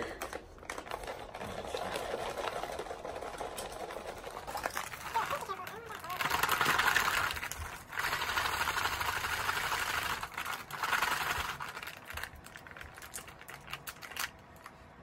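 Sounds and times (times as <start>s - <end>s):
drink pouch being shaken: 0.6s - 14.7s
plastic pouch crinkling: 4.8s - 14.7s.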